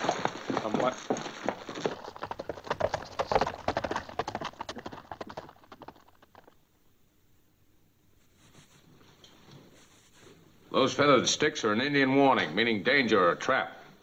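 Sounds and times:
horse hoofbeats galloping: 0:00.0 - 0:06.7.

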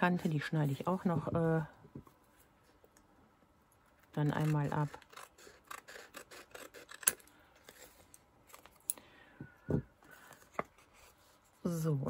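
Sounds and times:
scissors snipping paper: 0:04.1 - 0:07.2.

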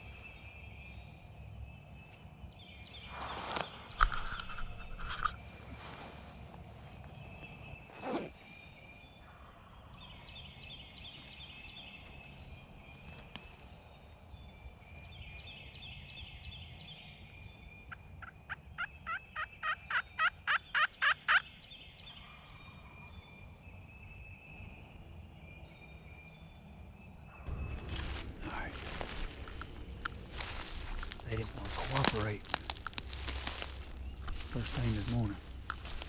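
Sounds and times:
songbirds chirping: 0:00.0 - 0:36.0
wild turkey yelping: 0:17.9 - 0:21.4.

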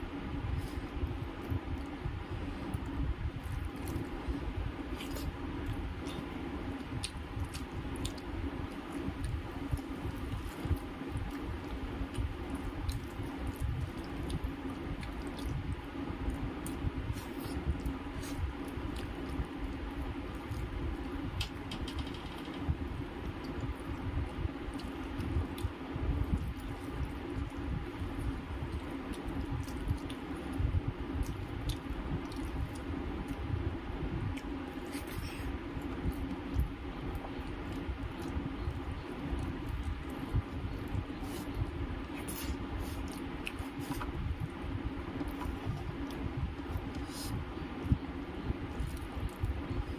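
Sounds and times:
low hum: 0:00.0 - 0:49.9
wet chewing: 0:00.6 - 0:21.6, 0:23.1 - 0:33.6, 0:34.2 - 0:48.0, 0:48.6 - 0:49.9
small clicks and smacks: 0:21.3 - 0:23.7.

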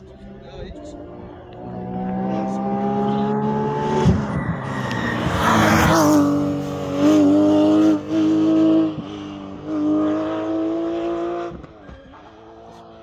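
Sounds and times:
race car engine at full throttle: 0:00.0 - 0:13.0.

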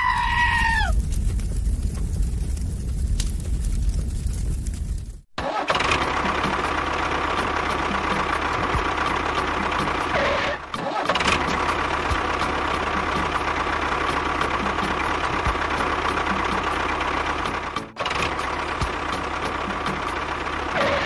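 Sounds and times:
model tractor engine running: 0:05.4 - 0:21.0.

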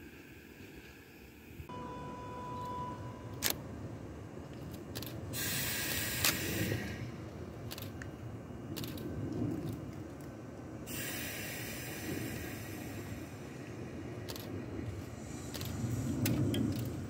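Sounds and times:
train air hiss: 0:00.0 - 0:01.7, 0:05.0 - 0:07.9, 0:10.7 - 0:17.0
train rumble: 0:00.0 - 0:17.0
short steady beep: 0:01.7 - 0:03.4.

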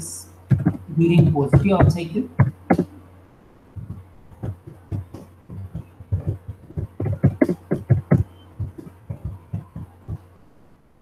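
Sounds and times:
faint low hum: 0:00.0 - 0:11.0
computer keyboard typing: 0:00.5 - 0:02.9, 0:03.8 - 0:10.2.

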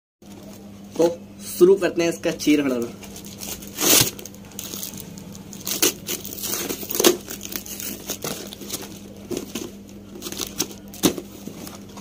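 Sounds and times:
cardboard box tearing: 0:03.3 - 0:11.8.

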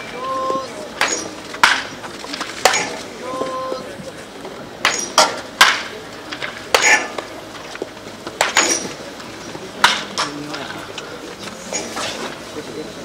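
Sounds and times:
wooden bat hitting baseball: 0:00.4 - 0:03.8, 0:04.8 - 0:09.0, 0:09.8 - 0:10.4.

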